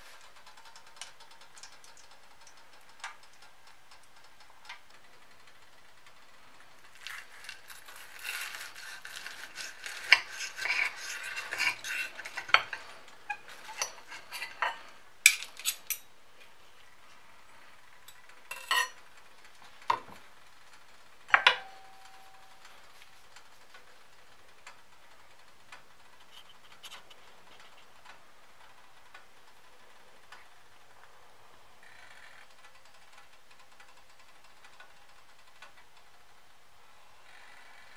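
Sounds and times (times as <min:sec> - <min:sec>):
knife sawing through crispy crust: 0:06.9 - 0:14.9
metal clinks on plate: 0:18.5 - 0:18.9
cutlery clicking on plate: 0:18.5 - 0:19.0.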